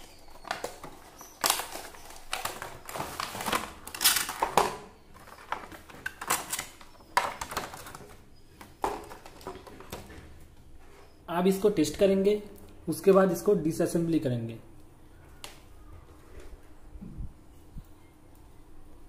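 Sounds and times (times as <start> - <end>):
cardboard and plastic packaging handled: 0.0 - 11.1.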